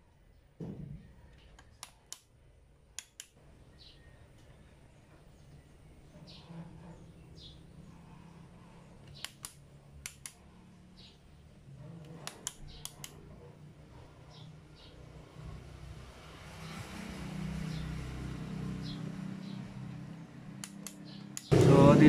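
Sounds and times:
sharp plastic clicks: 1.5 - 2.3, 2.9 - 3.4, 9.0 - 10.4, 12.1 - 13.3, 20.6 - 21.6.

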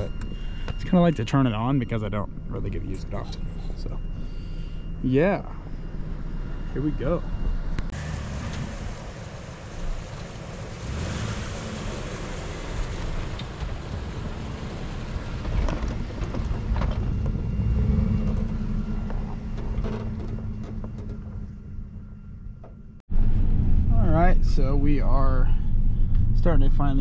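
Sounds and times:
pickup engine driving past: 8.0 - 15.8.

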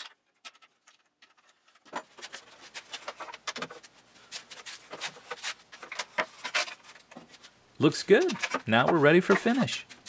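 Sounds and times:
wooden knocks and clicks: 8.2 - 9.8.

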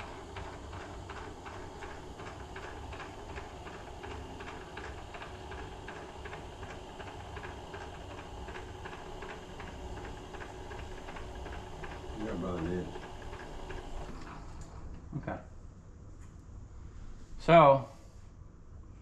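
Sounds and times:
milling machine hum with ticking: 0.0 - 15.1.

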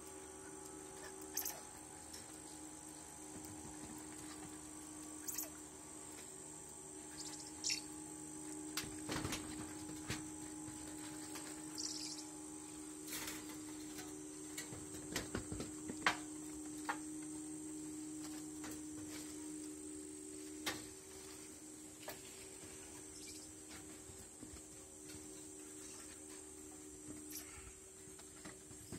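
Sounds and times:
high insect drone: 0.0 - 28.9
low steady hum: 0.0 - 28.9
monkeys rustling foliage: 0.5 - 6.4.

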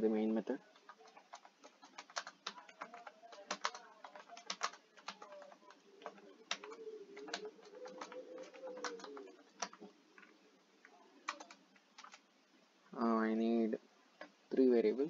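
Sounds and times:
computer keyboard typing: 0.5 - 12.2.

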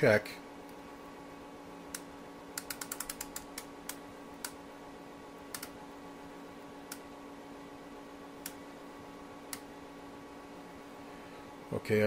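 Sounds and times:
steady low hum: 0.0 - 12.0
rotary switch clicks: 1.9 - 4.6, 5.5 - 5.8, 8.4 - 8.6, 9.5 - 9.7.

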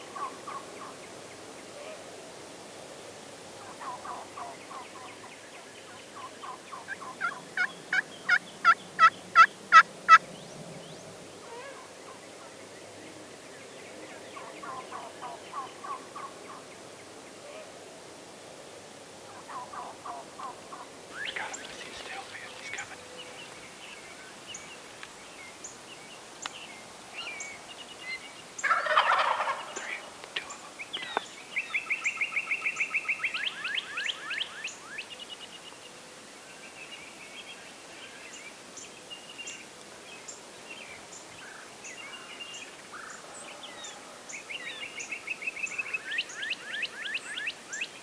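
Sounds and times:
turkeys gobbling: 3.7 - 5.1, 6.4 - 10.2, 14.4 - 16.6, 19.3 - 23.2, 28.6 - 30.8.

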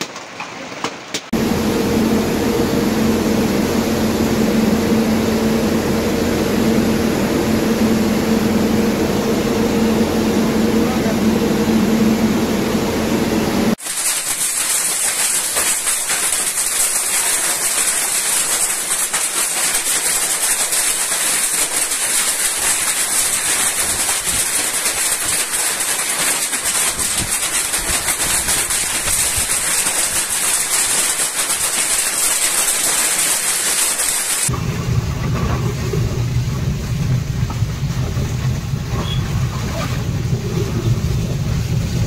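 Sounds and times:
hail and heavy rain pelting: 13.8 - 34.5.

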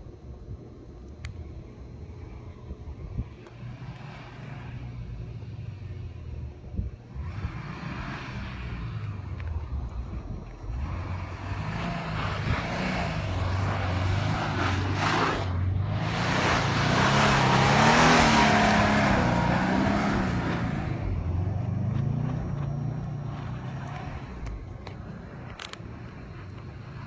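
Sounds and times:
car engine revving: 3.4 - 6.3, 7.1 - 27.0.

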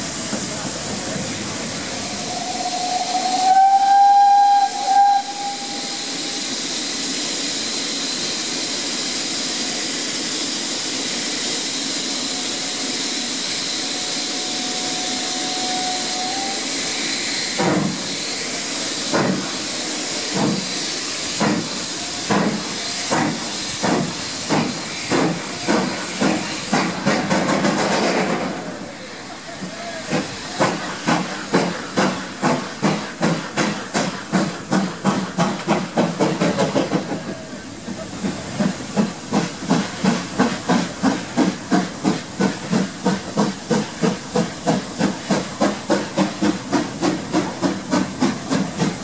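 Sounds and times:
steam hiss: 0.0 - 49.0
steam locomotive whistle: 2.0 - 6.5, 13.6 - 17.6.

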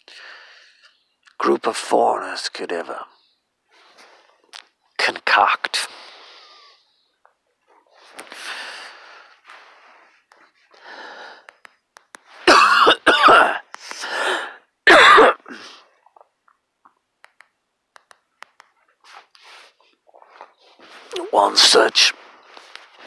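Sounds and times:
man coughing: 12.4 - 13.6, 14.9 - 15.7
man clearing throat: 12.5 - 13.6, 14.9 - 15.6.

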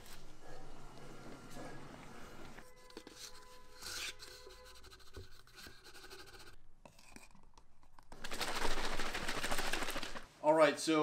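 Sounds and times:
shaker bottle rattling: 8.1 - 10.2.

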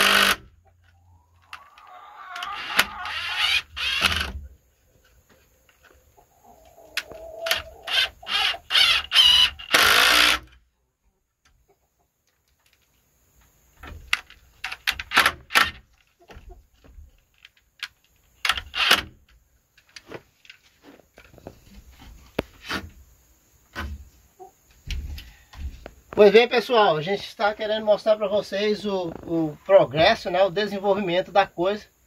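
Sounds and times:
cordless driver driving screws: 0.0 - 0.4, 2.8 - 4.4, 7.9 - 10.5.

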